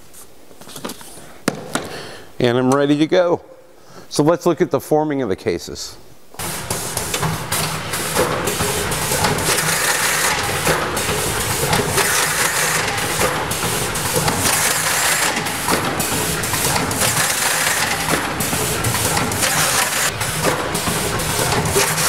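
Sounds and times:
machine clacks: 6.4s - 22.0s
packaging machine din: 6.4s - 22.0s.

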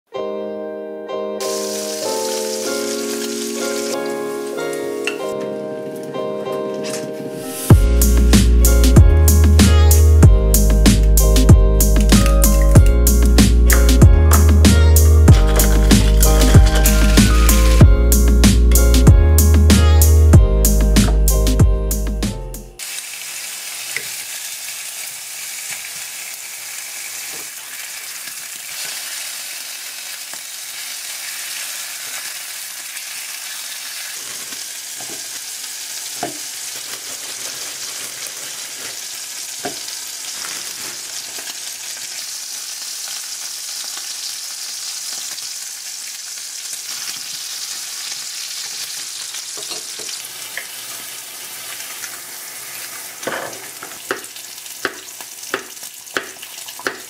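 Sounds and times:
meat sizzling in a frying pan: 1.4s - 5.0s, 22.8s - 57.0s.

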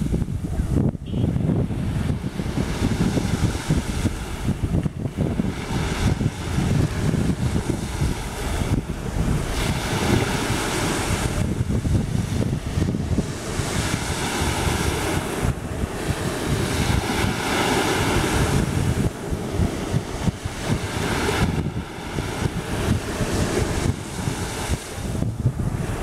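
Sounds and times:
waves washing up a beach: 0.0s - 26.0s
wind buffeting microphone: 0.0s - 26.0s.

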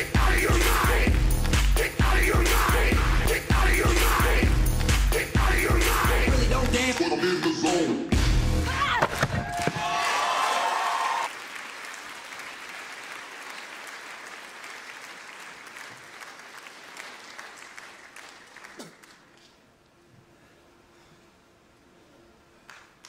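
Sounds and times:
audience applauding: 9.1s - 19.4s.

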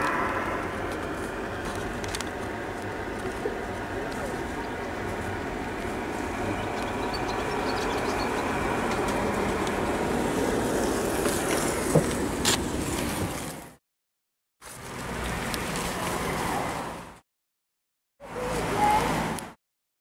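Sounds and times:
road traffic noise: 0.0s - 13.8s, 14.6s - 17.2s, 18.2s - 19.6s.

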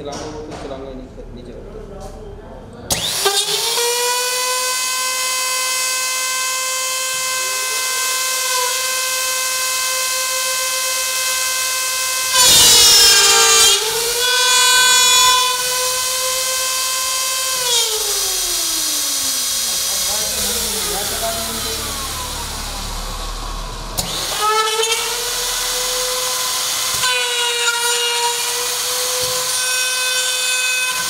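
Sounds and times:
router motor whining: 2.9s - 31.0s.

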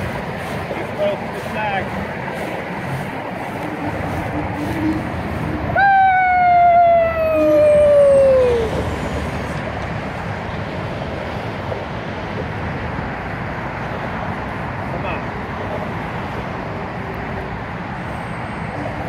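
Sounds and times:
road noise: 0.0s - 19.0s
long descending wail: 5.7s - 9.2s.

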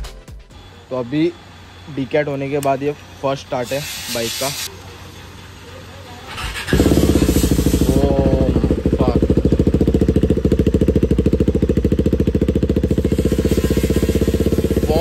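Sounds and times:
loud motorcycle engine idling: 0.6s - 15.0s
motorcycle engine starting: 5.6s - 15.0s.

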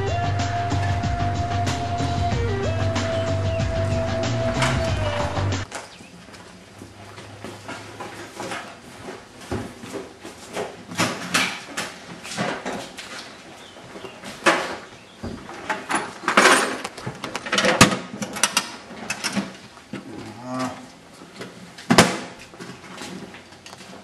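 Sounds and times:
knocks and scuffling: 3.7s - 24.0s
low groaning voice: 20.0s - 21.0s.

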